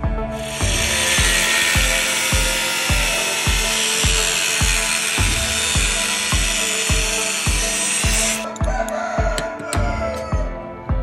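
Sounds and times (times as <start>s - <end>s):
background music with beat: 0.0s - 11.0s
power tool whining: 0.4s - 8.6s.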